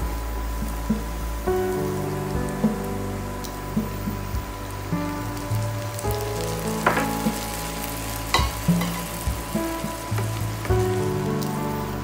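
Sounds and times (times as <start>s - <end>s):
background music: 0.0s - 12.0s
onions sizzling in oil: 0.1s - 12.0s
wooden spatula stirring in pan: 6.8s - 11.5s.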